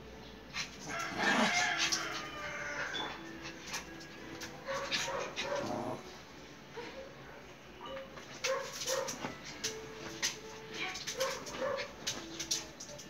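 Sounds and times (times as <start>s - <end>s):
dogs yipping and whining: 0.6s - 6.1s.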